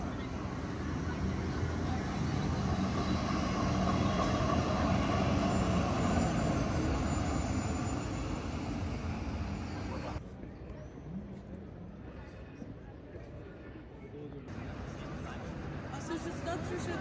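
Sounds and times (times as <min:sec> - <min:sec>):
vehicle rumbling: 0:00.0 - 0:10.2.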